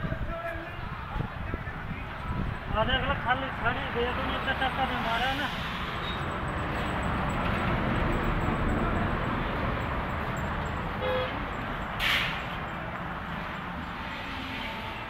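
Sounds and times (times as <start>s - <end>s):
vehicle horn toot: 11.0s - 11.5s
brief loud hiss: 12.0s - 12.5s.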